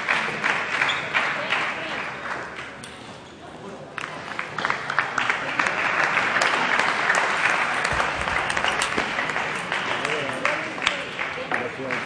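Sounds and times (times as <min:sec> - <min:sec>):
crowd applauding: 0:00.0 - 0:02.5, 0:04.0 - 0:12.0.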